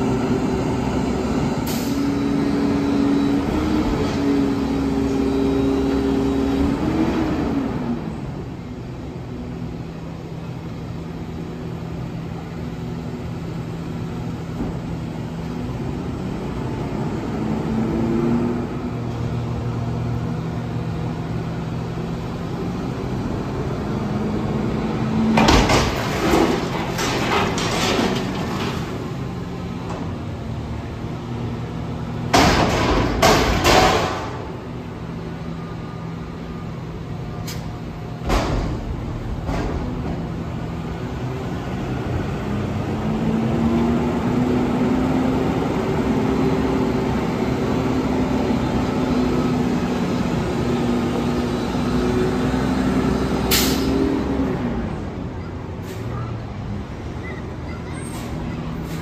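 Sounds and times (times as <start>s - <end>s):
diesel engine under hydraulic load: 0.0s - 59.0s
loud banging of bin: 25.3s - 29.0s, 32.3s - 34.5s, 38.2s - 40.3s.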